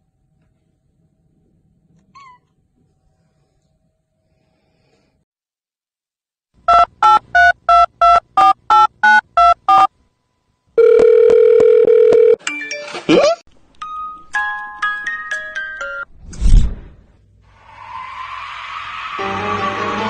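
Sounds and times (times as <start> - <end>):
quick sliding sound: 16.3 - 17.0.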